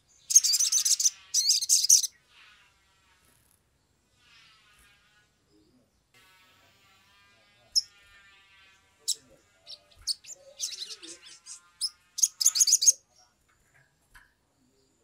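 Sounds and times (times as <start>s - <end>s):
faint steady buzz: 0.0s - 15.0s
bird sharp high chirps: 0.1s - 2.3s, 9.1s - 13.1s.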